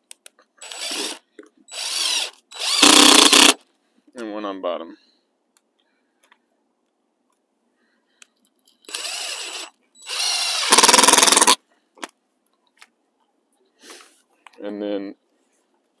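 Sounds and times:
cordless drill driving screw: 0.6 - 3.6, 8.9 - 11.6.

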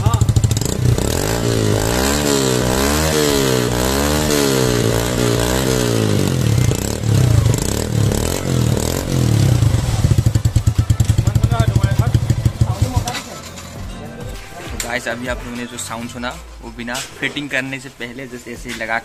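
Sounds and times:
motorcycle engine revving: 0.0 - 13.3.

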